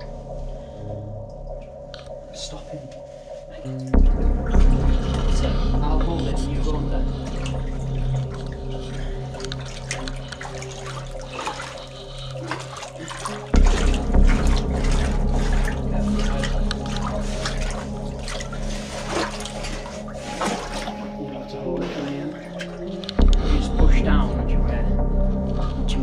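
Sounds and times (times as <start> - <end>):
droning background music: 0.0 - 26.0
splashing footsteps in water: 4.0 - 21.2, 21.8 - 23.6.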